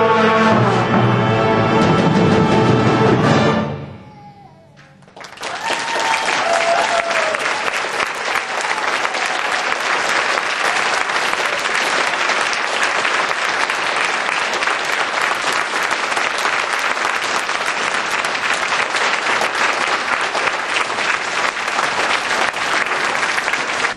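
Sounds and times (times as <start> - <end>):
audience applauding: 5.0 - 23.9.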